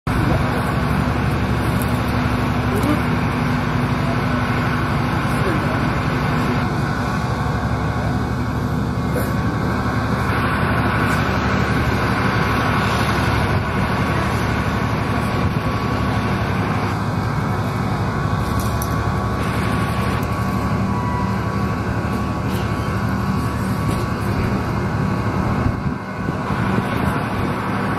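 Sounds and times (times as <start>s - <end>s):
ship engine droning: 0.0s - 27.9s.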